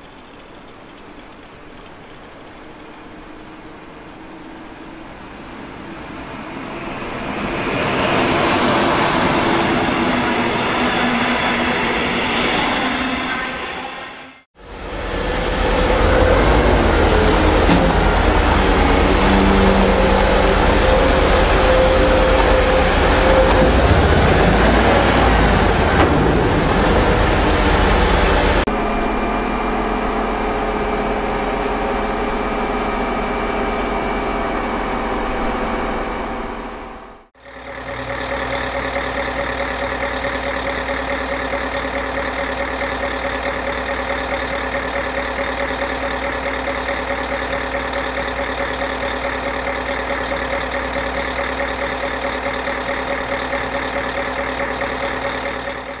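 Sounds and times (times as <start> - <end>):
passing train: 0.0 - 56.0
diesel engine idling: 14.6 - 56.0.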